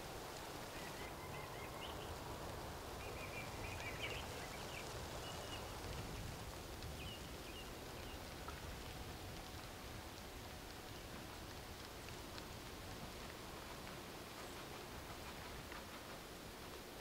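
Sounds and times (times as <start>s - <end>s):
small birds chirping: 3.0s - 8.3s.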